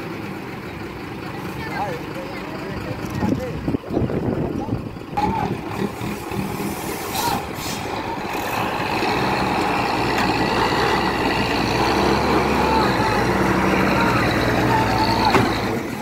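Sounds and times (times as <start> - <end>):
diesel truck engine under load: 0.0 - 16.0
short hisses: 6.0 - 8.0.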